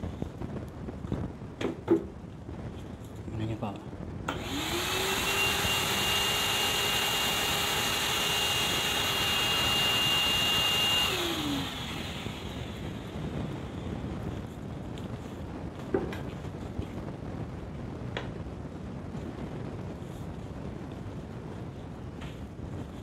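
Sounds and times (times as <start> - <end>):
vacuum cleaner motor whining: 4.3 - 13.6.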